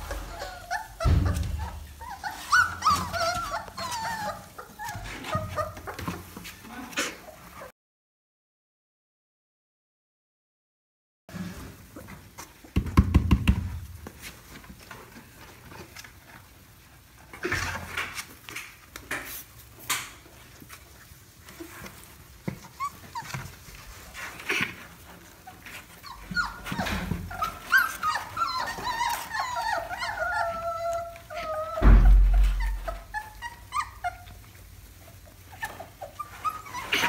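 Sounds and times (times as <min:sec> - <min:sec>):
puppies scratching cardboard box: 0:00.0 - 0:07.7, 0:11.9 - 0:31.9, 0:32.5 - 0:37.0
puppies whining: 0:00.0 - 0:07.7, 0:20.2 - 0:37.0.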